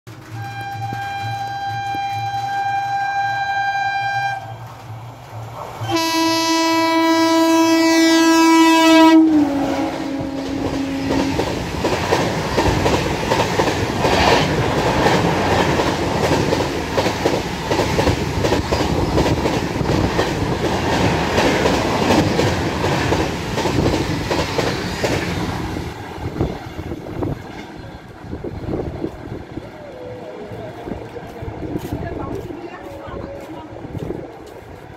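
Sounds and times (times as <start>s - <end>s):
train wheels clattering over rails: 0.1s - 3.6s, 10.2s - 29.7s
train horn blast: 0.2s - 4.8s, 5.8s - 11.5s.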